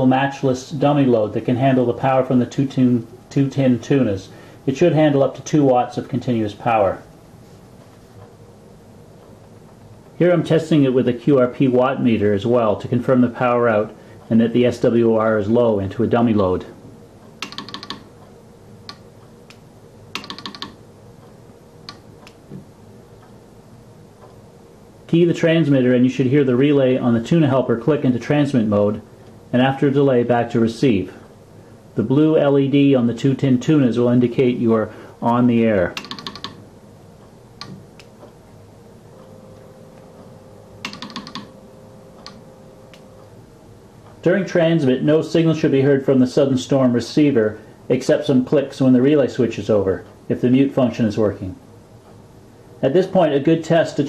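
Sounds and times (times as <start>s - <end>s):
telegraph key clicks: 17.4s - 18.1s, 18.9s - 20.8s, 36.0s - 36.6s, 40.8s - 41.5s.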